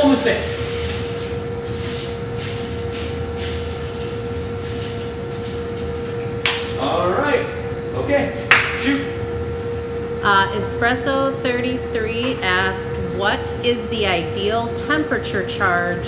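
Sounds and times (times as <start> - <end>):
coffee roaster humming: 0.0 - 16.0
sharp slaps: 6.4 - 6.8, 8.5 - 8.9.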